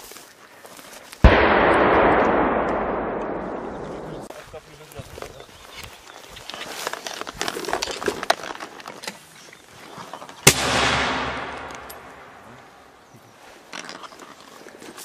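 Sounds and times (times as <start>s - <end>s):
rustling through dry grass: 0.0s - 1.3s, 4.3s - 10.5s
mortar shot with rolling echo: 1.2s - 4.3s, 10.5s - 13.0s.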